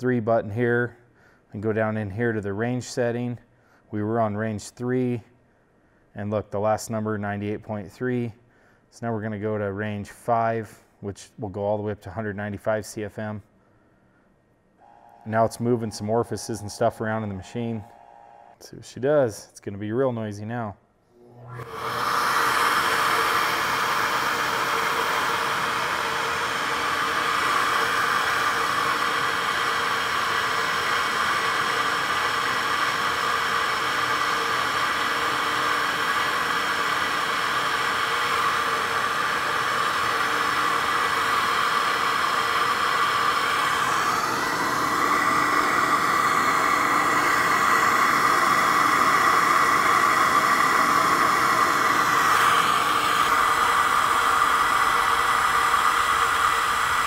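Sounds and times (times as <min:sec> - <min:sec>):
fans rushing air: 0:14.8 - 0:19.2, 0:21.2 - 0:57.0.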